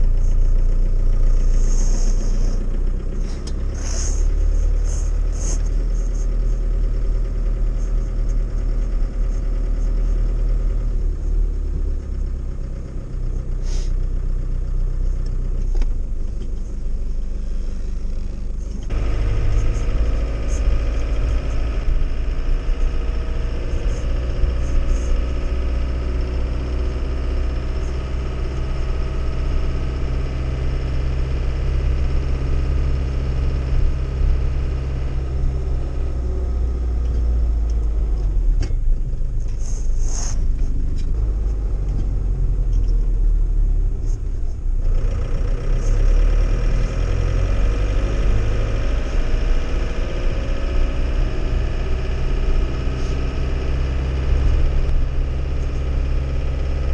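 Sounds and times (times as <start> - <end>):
truck engine under load: 0.0 - 56.9.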